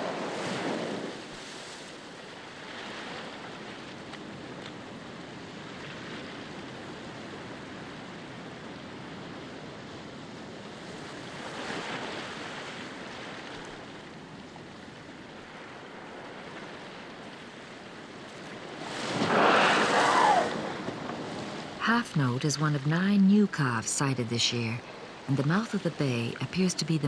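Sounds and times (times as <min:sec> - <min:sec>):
whale splashing: 0:00.0 - 0:04.4, 0:10.8 - 0:24.2
sea water noise: 0:00.0 - 0:27.0.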